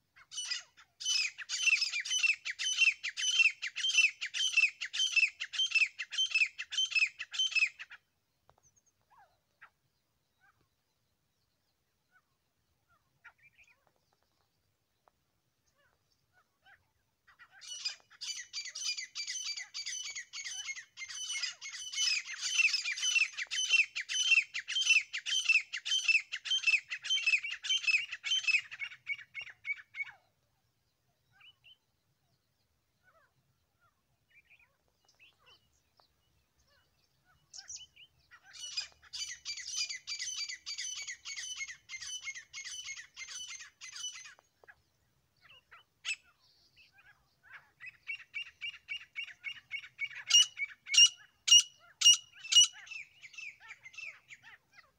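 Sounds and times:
bird calling harsh repeated notes: 0:17.4 - 0:29.9, 0:47.8 - 0:54.4.

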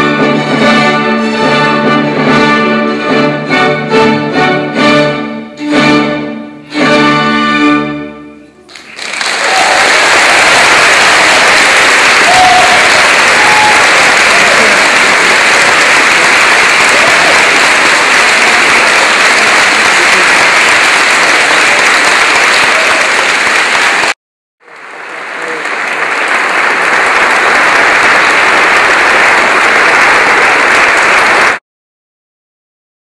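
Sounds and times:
audience applauding: 0:08.6 - 0:31.6.

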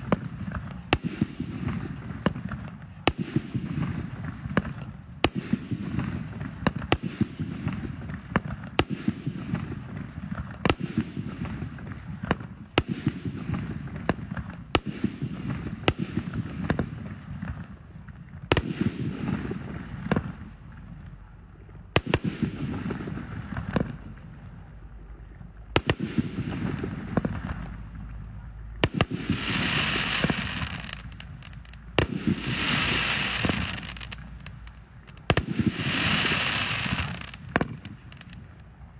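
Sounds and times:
fireworks bangs: 0:00.0 - 0:38.9
fireworks hiss: 0:28.8 - 0:38.4.

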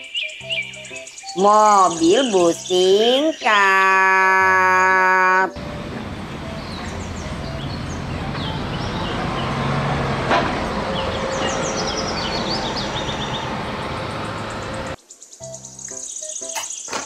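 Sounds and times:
birds chirping: 0:00.0 - 0:17.0
faint music: 0:00.0 - 0:17.0
traffic noise: 0:05.5 - 0:15.0
bus engine running: 0:05.6 - 0:15.0.

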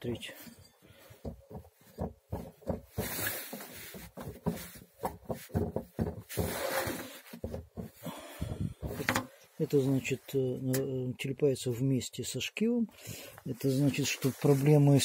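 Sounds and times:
washing machine drum knocking and rattling: 0:04.2 - 0:06.4.

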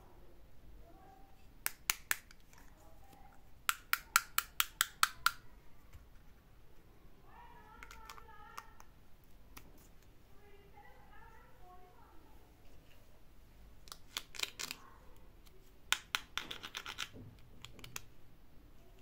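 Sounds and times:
plastic toy pieces clicking: 0:03.7 - 0:05.4, 0:07.8 - 0:08.9, 0:13.8 - 0:14.8, 0:15.4 - 0:18.1.

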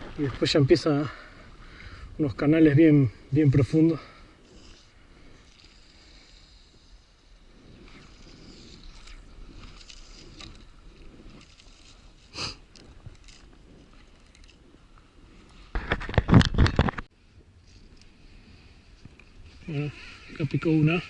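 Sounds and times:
wind and water hiss: 0:00.0 - 0:21.0
microphone rubbing and crackling: 0:04.4 - 0:21.0.

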